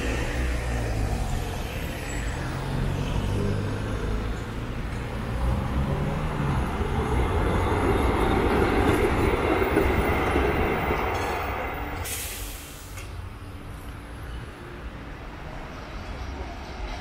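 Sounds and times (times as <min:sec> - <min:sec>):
electric tram rolling on rails: 0:00.0 - 0:17.0
faint street background: 0:00.0 - 0:17.0
short high hiss: 0:12.0 - 0:13.0.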